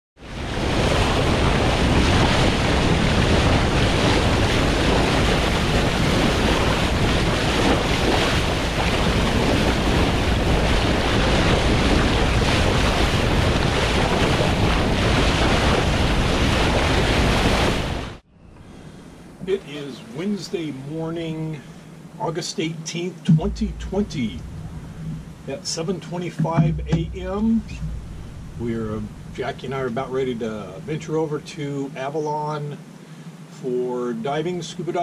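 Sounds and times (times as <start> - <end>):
water rushing past boat bow: 0.2 - 18.2, 23.2 - 31.2
wind buffeting microphone: 0.2 - 18.2, 23.3 - 25.6, 26.2 - 30.8.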